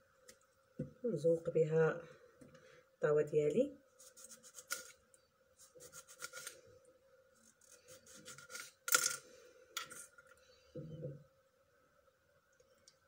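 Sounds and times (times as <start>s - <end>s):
faint steady hum: 0.0s - 13.0s
knife slicing lemon: 5.7s - 6.6s.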